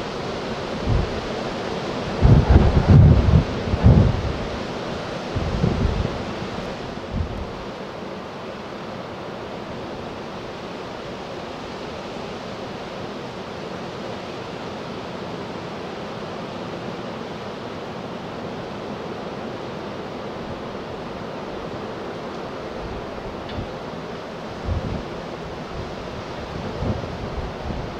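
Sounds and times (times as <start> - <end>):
wind bump on microphone: 0.8 - 1.2, 2.1 - 4.7, 5.3 - 7.6, 24.6 - 27.9.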